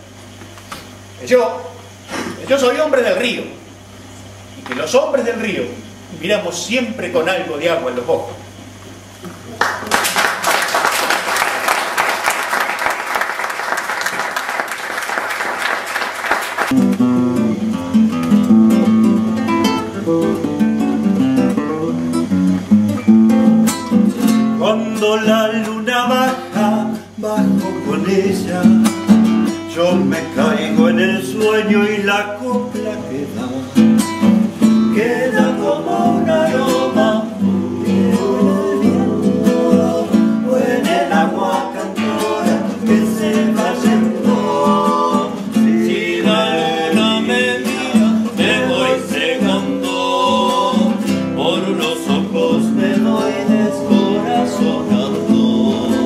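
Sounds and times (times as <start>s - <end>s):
classical guitar strumming: 16.7s - 33.0s, 33.8s - 56.0s
people singing together: 24.6s - 29.0s, 29.7s - 34.0s, 34.8s - 56.0s.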